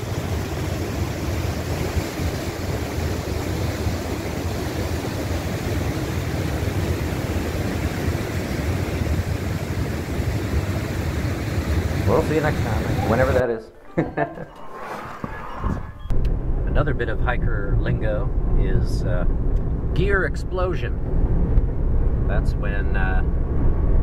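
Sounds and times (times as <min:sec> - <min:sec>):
creek rushing over rapids: 0:00.0 - 0:13.4.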